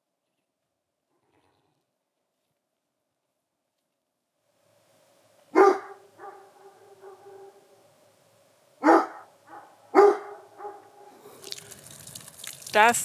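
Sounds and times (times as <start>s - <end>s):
dog barking: 5.5s - 7.8s, 8.8s - 11.2s.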